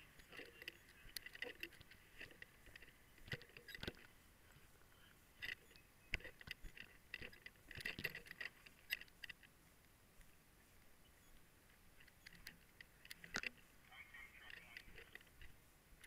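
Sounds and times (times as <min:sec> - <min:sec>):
gear clicking and rattling: 0:00.0 - 0:04.2, 0:05.4 - 0:09.5, 0:14.3 - 0:16.0
low hiss: 0:00.0 - 0:16.0.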